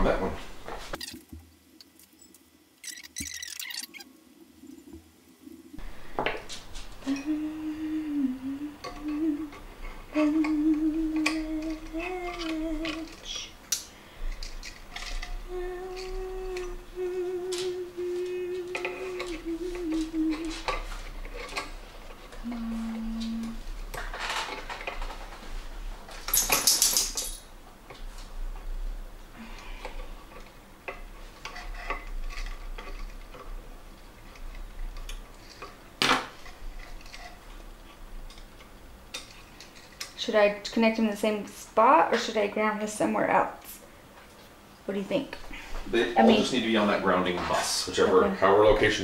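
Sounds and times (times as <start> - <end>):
wire rustling: 0.4 - 40.4
person humming: 5.8 - 13.6, 15.1 - 20.9, 22.3 - 23.7, 45.9 - 46.6.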